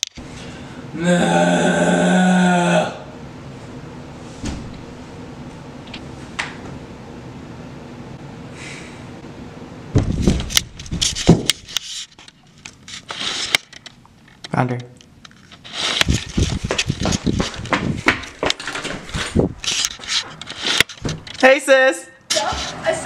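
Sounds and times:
camera handling knocks and rustles: 16.0s - 21.4s.

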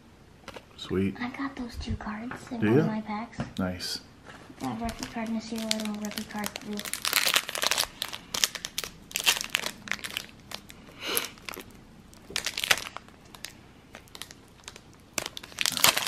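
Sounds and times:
plastic wrapper crinkling and tearing: 4.6s - 16.0s.

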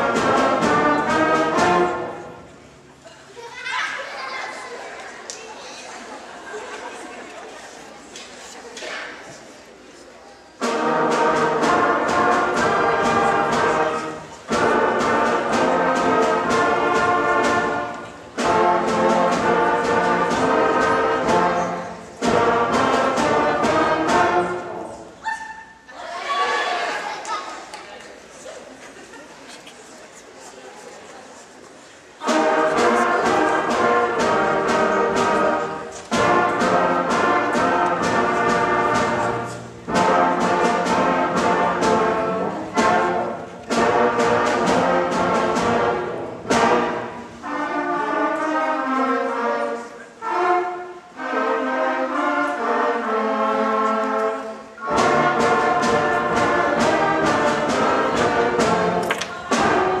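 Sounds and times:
concert band playing: 0.0s - 2.8s, 10.6s - 25.2s, 32.2s - 60.0s.

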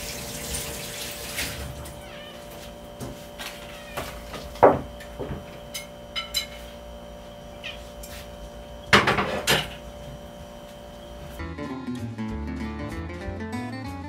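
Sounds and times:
steady hum: 0.0s - 11.4s
knocks: 4.6s - 5.5s
dishes clattering: 4.6s - 6.7s, 8.9s - 9.8s.

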